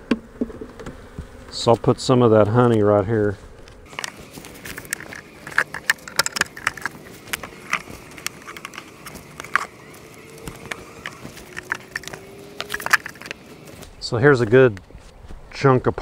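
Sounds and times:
honey bees buzzing: 0.0s - 14.7s
hive tool clicking on wooden box: 3.7s - 13.8s.

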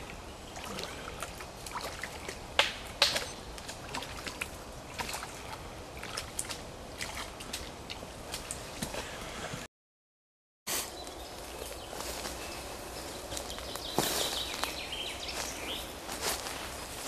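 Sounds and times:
boots splashing through water: 0.6s - 9.1s.

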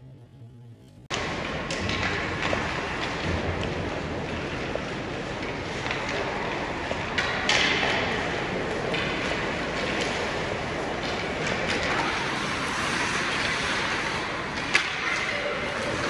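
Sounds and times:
echoing arena hum: 0.0s - 16.0s
hockey sticks and puck clacking: 1.1s - 16.0s
skate blades scraping ice: 8.1s - 16.0s.

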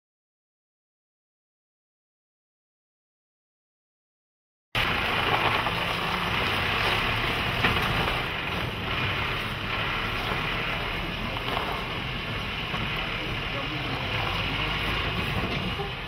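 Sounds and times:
diesel truck engine running: 4.8s - 16.0s
tyres on gravel: 4.8s - 16.0s.

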